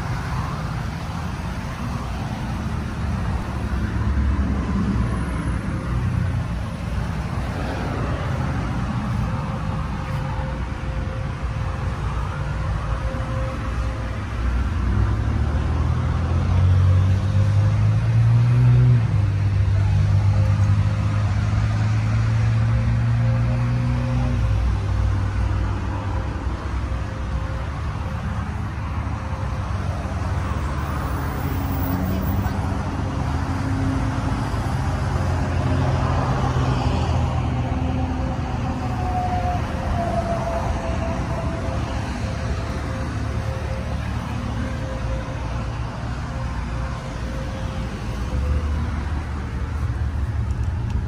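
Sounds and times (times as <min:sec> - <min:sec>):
road traffic rumble: 0:00.0 - 0:51.0
vehicle engine humming: 0:00.0 - 0:51.0.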